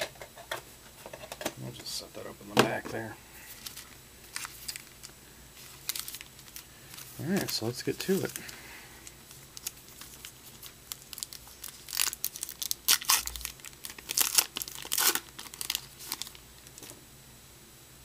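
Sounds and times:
wrapper tearing and crinkling: 3.4s - 16.9s.

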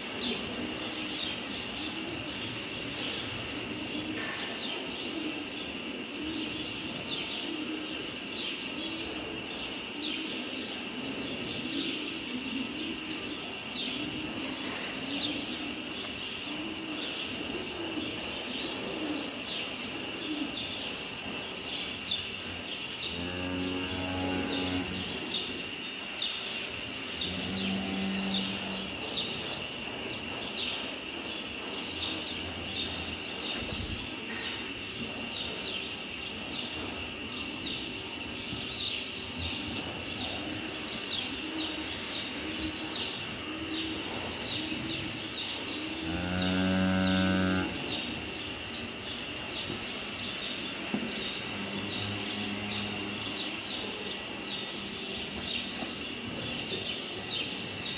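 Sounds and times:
cattle mooing: 46.0s - 47.8s.

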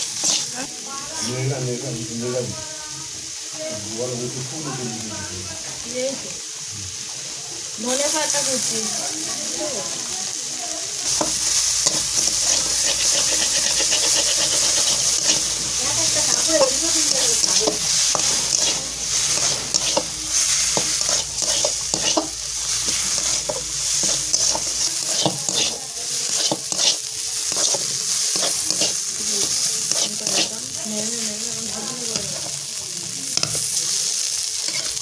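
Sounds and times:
metal spatula scraping a pan: 0.0s - 1.4s, 11.1s - 30.7s, 34.6s - 35.0s
fish sizzling in frying: 0.0s - 35.0s.

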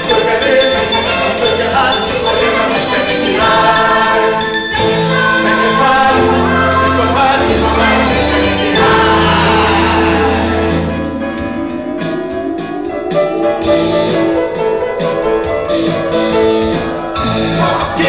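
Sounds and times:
mixed choir singing: 0.0s - 14.8s, 15.9s - 18.0s
instrumental accompaniment: 0.0s - 18.0s
low bass: 6.2s - 12.6s.

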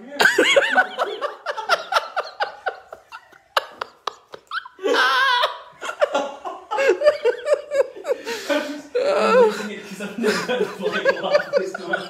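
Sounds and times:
people laughing: 0.0s - 12.0s.

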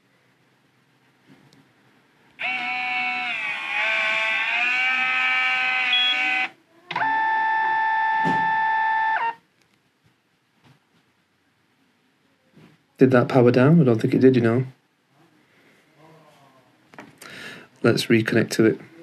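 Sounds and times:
printer motor whining: 2.4s - 9.4s.

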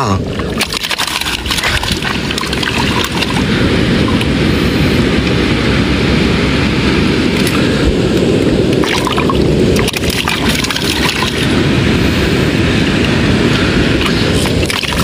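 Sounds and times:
wind rumble on microphone: 0.0s - 15.0s
water splashing in rock pool: 0.3s - 3.5s, 8.8s - 11.6s, 14.0s - 15.0s.

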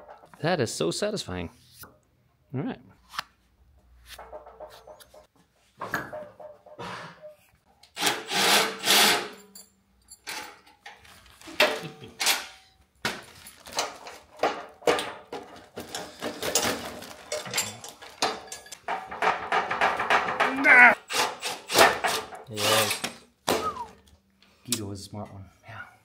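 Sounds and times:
plastic sheeting rustling: 13.2s - 14.2s.

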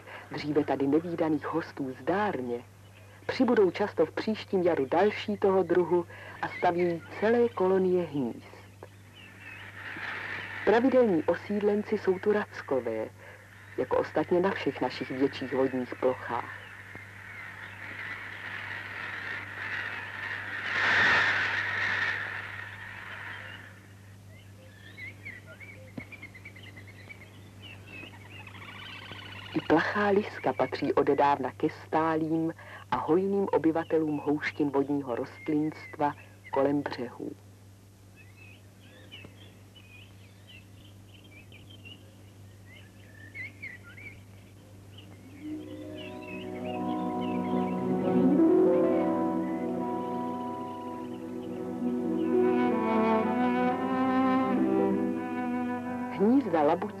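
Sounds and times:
small birds chirping: 0.0s - 20.8s, 21.8s - 37.4s, 38.0s - 53.4s
low steady hum: 0.0s - 57.0s
gull colony calling: 45.2s - 56.4s.

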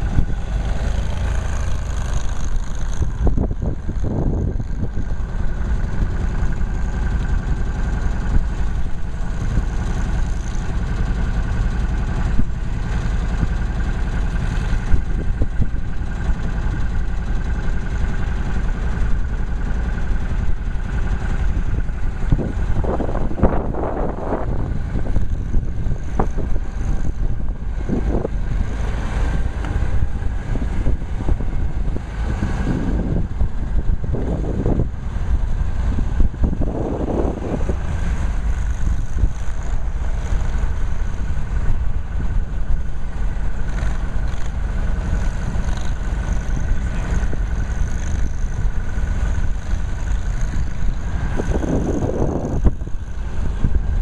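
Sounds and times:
heavy low rumble: 0.0s - 54.0s
small vehicle engines revving: 0.0s - 54.0s.

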